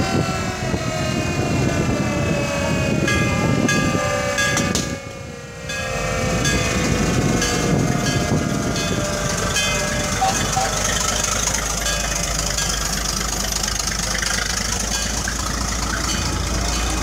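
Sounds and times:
mechanical siren winding down: 0.0s - 12.6s
fire engine rumble: 0.0s - 17.0s.

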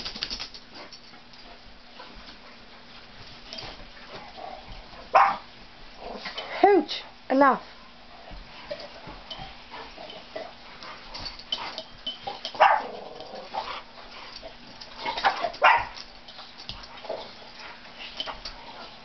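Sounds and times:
dogs barking and growling: 4.0s - 6.6s, 8.6s - 19.0s.

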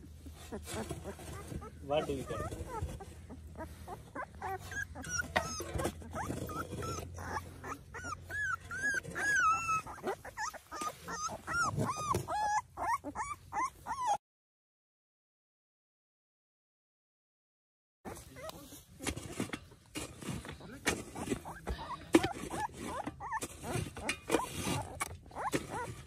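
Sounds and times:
puppies whimpering and crying: 0.0s - 14.2s, 18.1s - 26.0s
shovel digging in dry earth: 18.1s - 26.0s.

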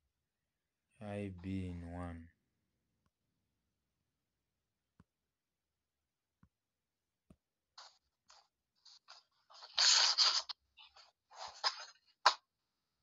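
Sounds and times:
scraping on a touchscreen: 7.8s - 12.1s.

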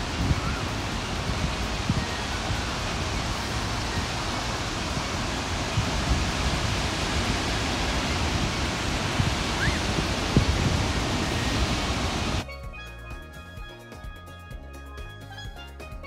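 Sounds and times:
sea surf breaking on sand: 0.0s - 12.4s
wind noise on microphone: 0.0s - 12.8s.

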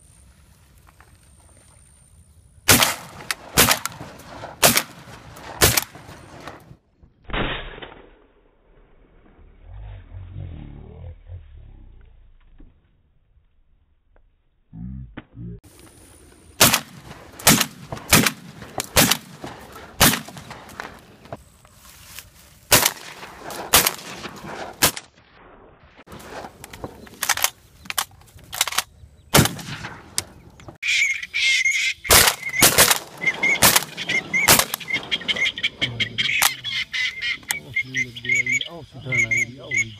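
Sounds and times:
shotgun shots: 2.7s - 6.6s, 16.6s - 21.0s, 22.7s - 25.1s, 28.6s - 30.4s, 32.1s - 35.6s
waterfowl calling: 30.8s - 39.9s.

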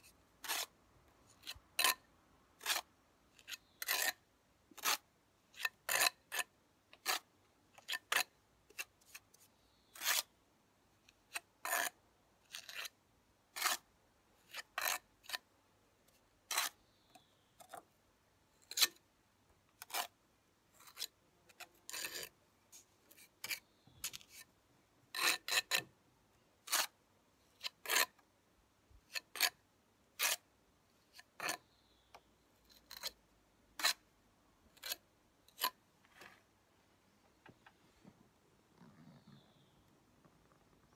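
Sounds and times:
steel trowel scraping mortar: 0.4s - 0.8s, 1.4s - 4.2s, 4.8s - 9.2s, 9.9s - 10.3s, 11.3s - 13.0s, 13.6s - 13.9s, 14.5s - 15.4s, 16.5s - 16.8s, 18.6s - 19.0s, 19.8s - 20.1s, 20.8s - 22.4s, 25.1s - 25.9s, 26.6s - 27.0s, 27.6s - 28.2s, 29.1s - 29.6s, 30.2s - 30.4s, 31.2s - 31.6s, 32.8s - 33.2s, 33.8s - 34.0s, 34.7s - 35.8s.

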